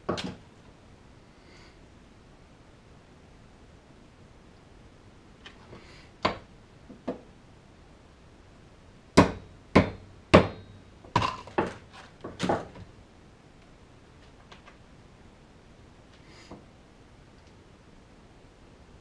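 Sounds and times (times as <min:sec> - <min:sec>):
hammer tapping metal: 0:09.2 - 0:11.4.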